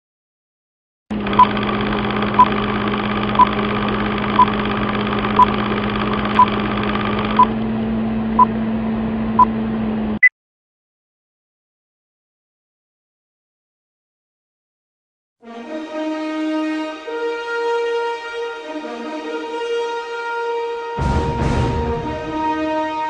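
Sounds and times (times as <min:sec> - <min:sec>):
mechanical whir with low hum: 0:01.1 - 0:10.3.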